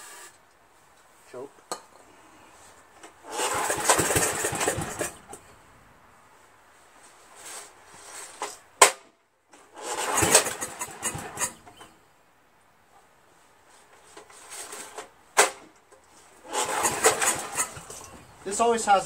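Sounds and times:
engine cranking with rasping whir: 3.2s - 5.5s, 9.6s - 12.0s, 16.4s - 18.4s.

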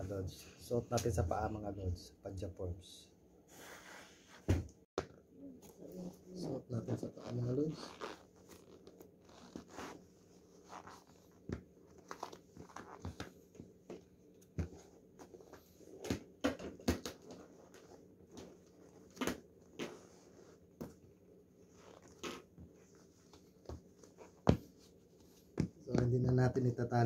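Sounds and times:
sneakers rustling: 21.8s - 26.3s.

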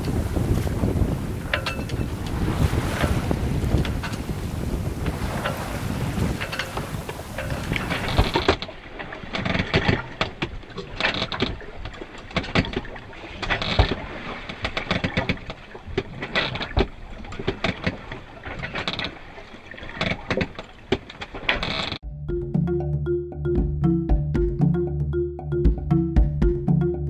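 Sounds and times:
water washing and rushing: 0.0s - 21.5s.

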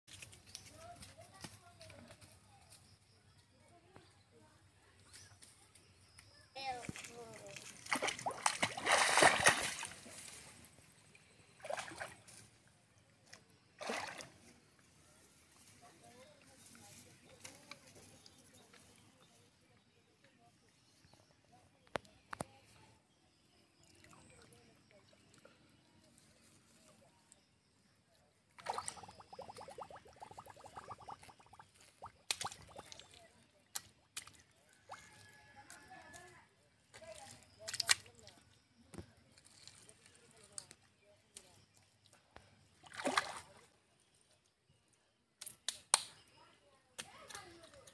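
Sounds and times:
wet mud squelching: 6.7s - 10.8s, 28.6s - 35.2s, 37.0s - 38.4s, 42.7s - 43.6s
splashes of shallow water: 6.8s - 10.7s, 11.4s - 12.8s, 13.7s - 14.6s, 28.5s - 35.4s, 37.0s - 38.5s, 41.3s - 43.8s.

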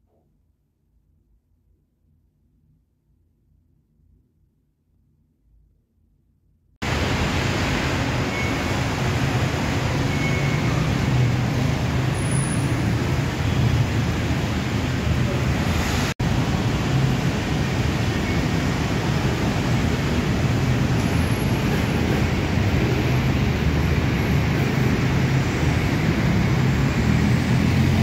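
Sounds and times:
city street traffic: 6.8s - 28.0s.

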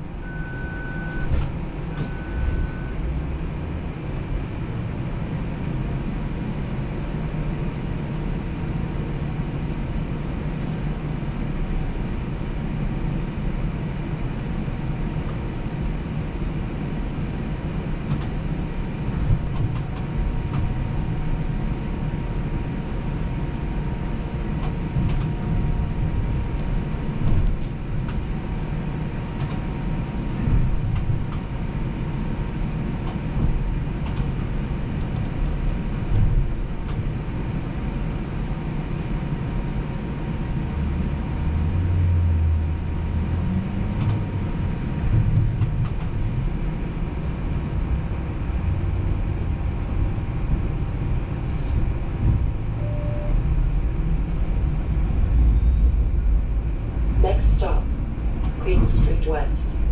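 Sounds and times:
streetcar rumbling along track: 0.0s - 59.9s
short beeps: 0.2s - 3.0s, 52.8s - 53.4s, 55.5s - 55.9s.

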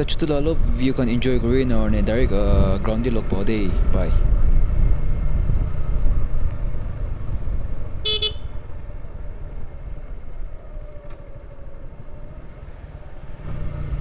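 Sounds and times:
motorcycle engine and wind rumble: 0.0s - 14.0s
vehicle horn toot: 8.0s - 8.6s.

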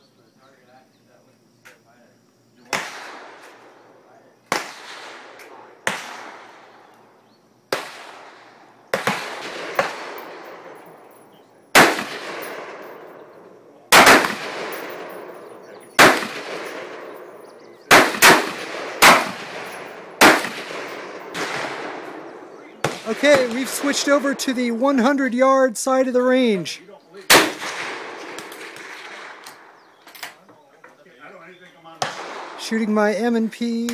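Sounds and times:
quieter distant gunshots: 2.7s - 25.5s, 27.3s - 30.0s, 32.0s - 33.3s
rifle shots echoing: 2.7s - 26.6s, 27.3s - 30.0s, 32.0s - 33.4s.

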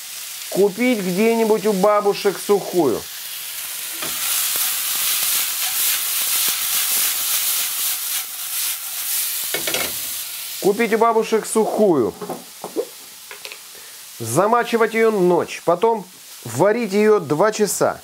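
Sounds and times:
beans and onions sizzling in oil: 0.0s - 18.0s
man's voice: 0.5s - 3.1s, 10.6s - 12.2s, 14.2s - 18.0s
food scraping against pan: 3.8s - 10.2s.

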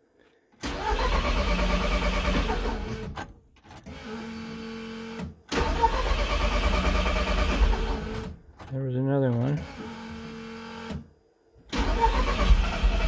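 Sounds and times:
starter motor cranking engine: 0.6s - 4.2s, 5.5s - 8.4s, 11.7s - 13.0s.

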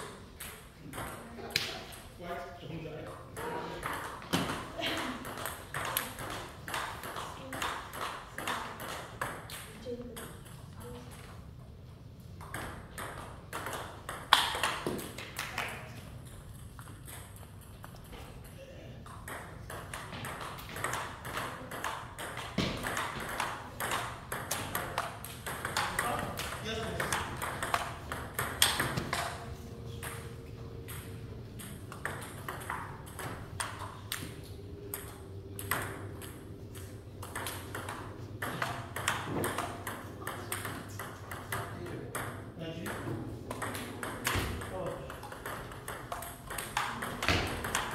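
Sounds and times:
table tennis ball rally: 3.1s - 11.3s, 12.3s - 47.9s
ball bouncing on wooden floor: 3.4s - 10.6s, 19.0s - 29.4s, 30.0s - 47.9s
table tennis ball clicking: 45.1s - 47.9s.

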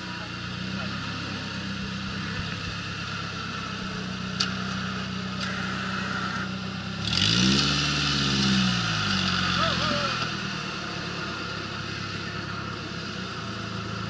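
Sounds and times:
buggy engine running: 0.0s - 14.0s.

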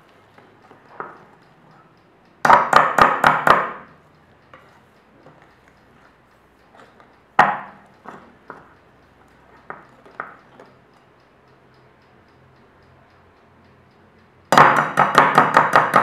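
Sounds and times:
sharp knocks: 7.4s - 7.8s, 14.5s - 16.0s.

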